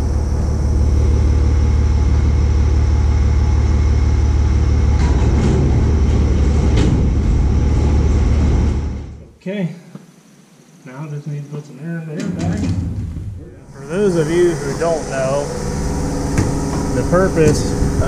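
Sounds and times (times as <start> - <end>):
tractor engine running: 0.0 - 9.2, 13.0 - 18.0.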